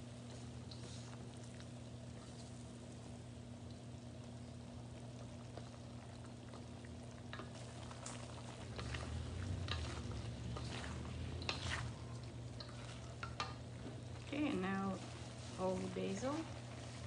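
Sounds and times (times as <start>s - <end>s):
frying sizzle: 0.0s - 17.0s
spatulas scraping a wok: 7.3s - 17.0s.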